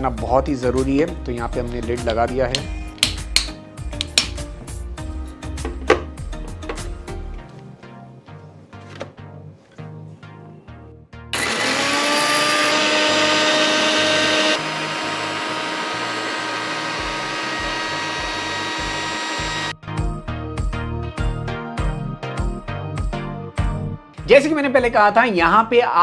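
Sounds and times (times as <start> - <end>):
background music with steady beat: 0.0 - 11.4, 17.0 - 26.0
mixer grinder motor whining: 11.4 - 19.8.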